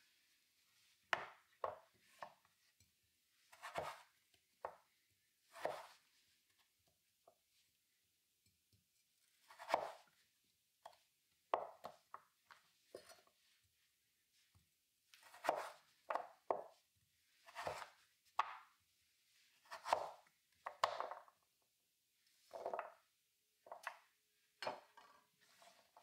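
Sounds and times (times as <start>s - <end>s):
knife cutting onto wooden board: 3.5s - 4.1s, 5.5s - 6.0s, 9.5s - 10.0s, 15.2s - 16.3s, 17.5s - 18.0s.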